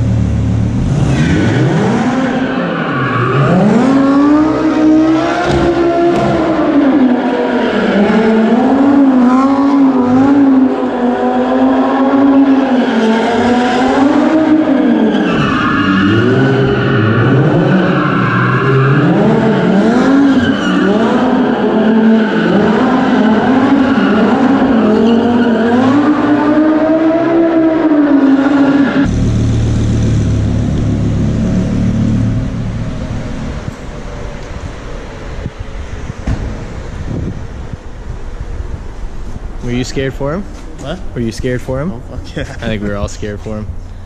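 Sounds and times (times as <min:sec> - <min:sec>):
car engine revving high: 0:00.0 - 0:33.8.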